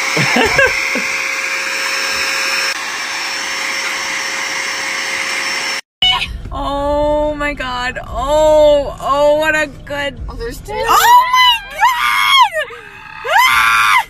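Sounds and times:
electric air duster whining: 0.0 - 5.8.

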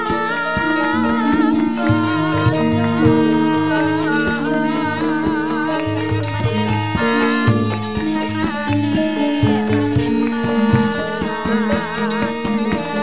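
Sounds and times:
drum strokes: 0.0 - 13.0
metallophones ringing: 0.0 - 13.0
wavering high melodic line: 0.0 - 13.0.

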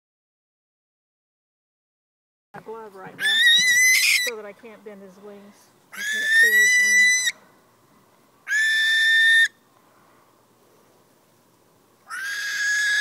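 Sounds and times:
barn owl screaming: 3.2 - 4.3, 5.9 - 7.4, 8.4 - 9.6, 12.0 - 13.0.

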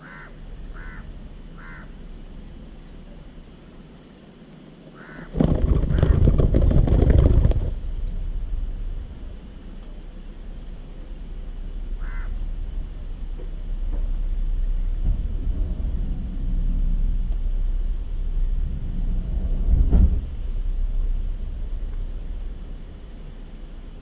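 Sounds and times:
bird call: 0.0 - 3.0, 12.0 - 13.0
low outdoor rumble: 0.0 - 24.0
thump: 19.7 - 20.3.

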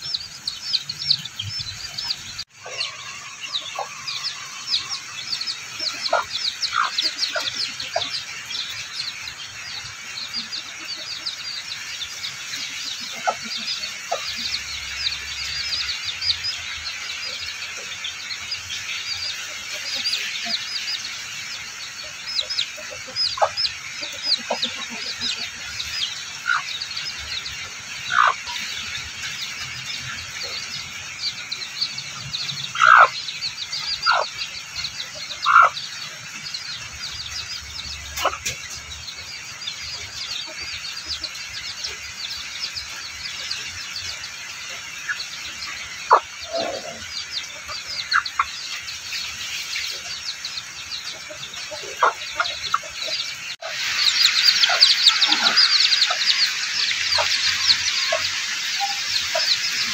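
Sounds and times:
hen calling: 0.0 - 15.7, 22.0 - 29.0, 32.7 - 34.4, 35.0 - 36.2, 51.1 - 59.9
chicks peeping: 0.0 - 59.9.

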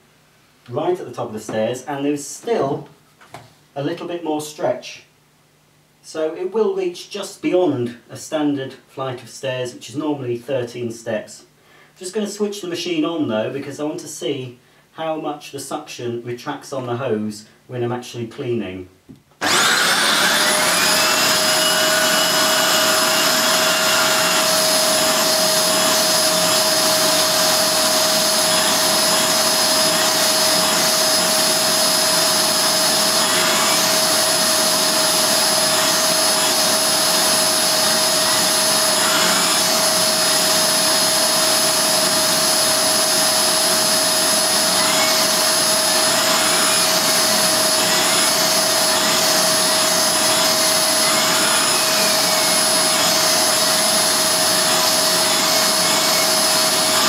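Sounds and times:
vacuum cleaner running: 19.4 - 57.0.

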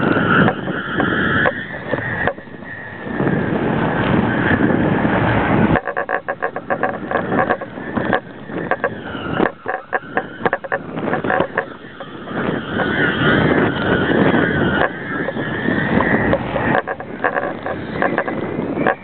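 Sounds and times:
faint whine: 0.0 - 19.0
wind rushing over camera: 0.0 - 19.0
rapid rattling flutter: 5.5 - 19.0.

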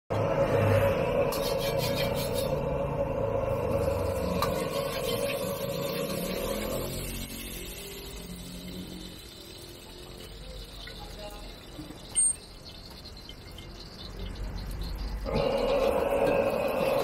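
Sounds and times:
gas burner rushing: 0.1 - 10.2, 15.2 - 17.0
ladle scraping wok: 0.3 - 8.8.

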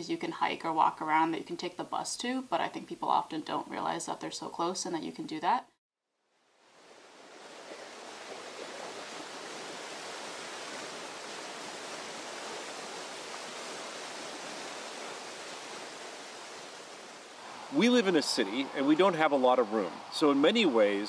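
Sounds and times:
water rushing over rocks: 6.7 - 21.0.

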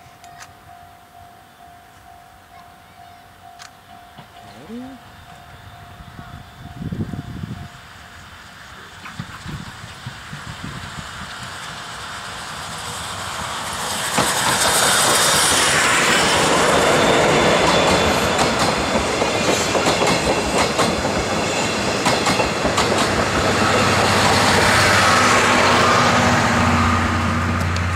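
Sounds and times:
steam train passing: 0.0 - 27.9
train wheels clacking over rail joints: 8.9 - 25.3.

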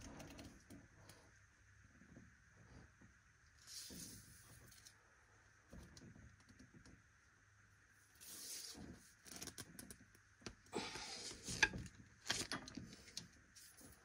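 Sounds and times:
rustling and scraping: 3.6 - 5.0, 8.0 - 10.0, 10.8 - 14.0.

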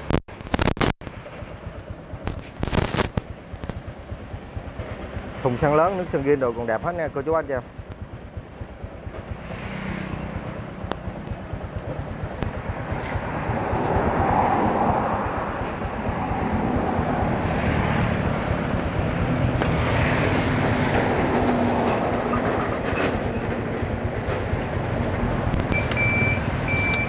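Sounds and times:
motorcycle engine idling: 1.2 - 2.6, 3.2 - 14.1.

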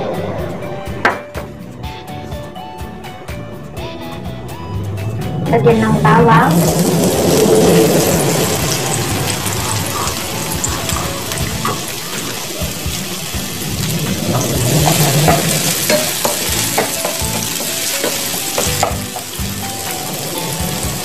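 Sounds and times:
garlic sizzling in oil: 6.4 - 21.0.

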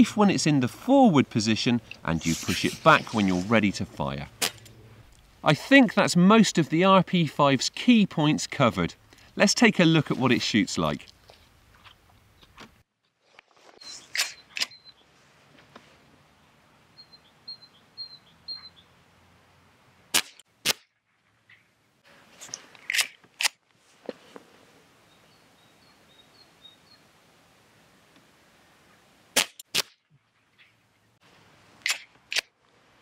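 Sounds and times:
air pistol cracks: 4.4 - 4.7, 20.1 - 20.9, 22.8 - 23.6, 29.4 - 30.0, 31.8 - 32.5.

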